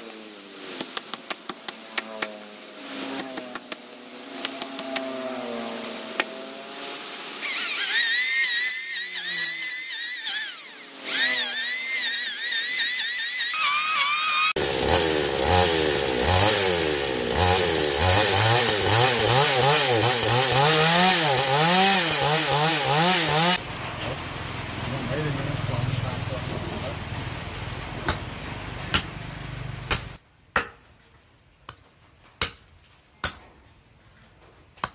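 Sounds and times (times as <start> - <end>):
power tool cutting wood: 0.8 - 23.6.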